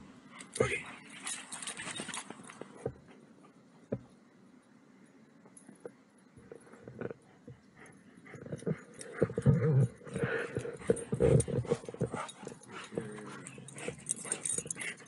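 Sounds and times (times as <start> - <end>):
dog growling and whining: 8.3 - 15.0.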